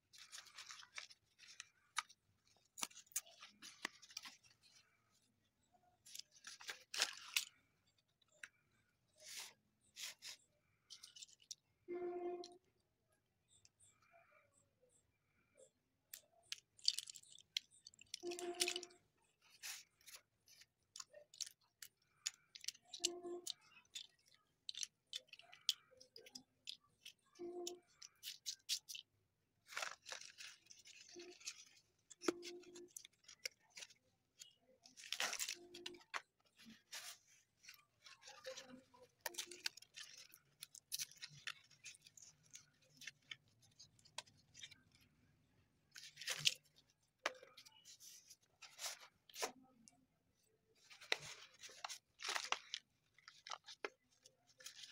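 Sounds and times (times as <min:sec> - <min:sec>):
paper packets crinkling and tearing: 0:00.0 - 0:11.6, 0:16.1 - 0:50.1, 0:50.8 - 0:54.9
slate pencils clicking together: 0:16.1 - 0:45.1.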